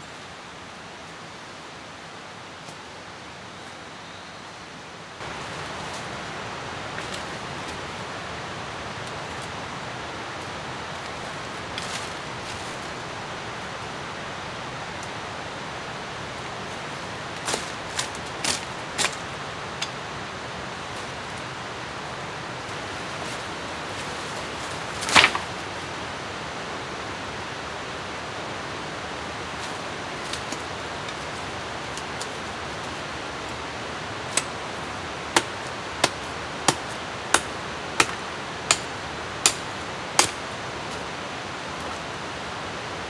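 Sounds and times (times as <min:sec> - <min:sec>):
rushing water: 0:00.0 - 0:43.0
machete chopping undergrowth: 0:25.0 - 0:25.5, 0:35.3 - 0:40.5.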